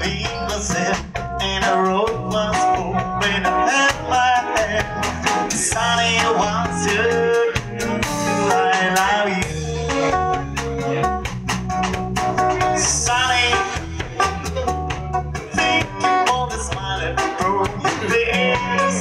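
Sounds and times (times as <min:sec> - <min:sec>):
bass guitar: 0:00.0 - 0:19.0
drum kit beat: 0:00.0 - 0:19.0
electric guitar melody: 0:00.0 - 0:19.0.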